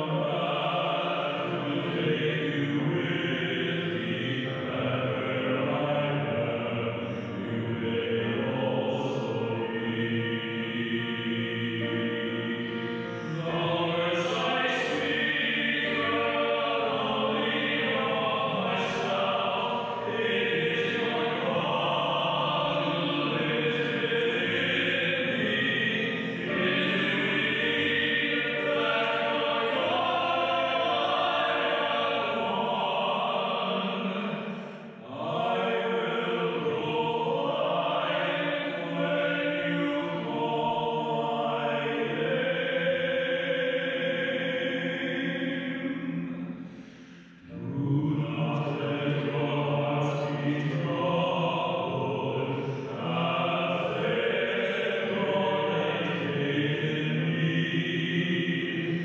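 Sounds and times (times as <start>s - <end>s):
man singing a slow hymn: 11.0s - 34.3s.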